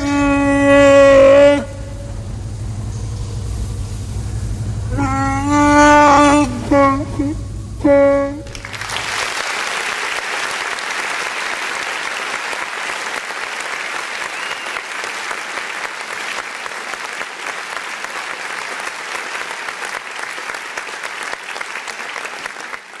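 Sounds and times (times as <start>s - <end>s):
crowd applauding: 8.5s - 23.0s.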